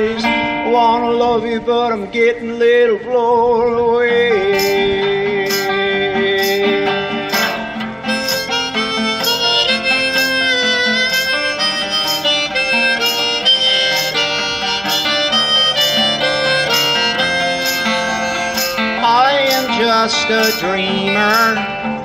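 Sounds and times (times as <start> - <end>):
strummed acoustic guitar: 0.0 - 22.0
harmonica solo: 7.2 - 21.6.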